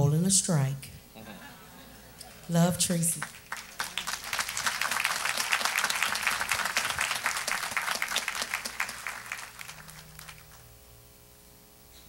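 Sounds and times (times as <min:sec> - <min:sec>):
congregation applauding: 0:03.1 - 0:10.7.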